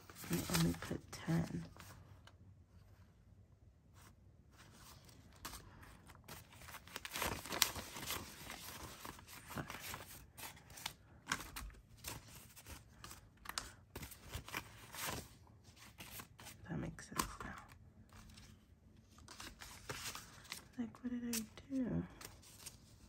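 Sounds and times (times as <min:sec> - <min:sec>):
banknotes rustling while counted: 0:04.6 - 0:18.6, 0:19.2 - 0:23.0.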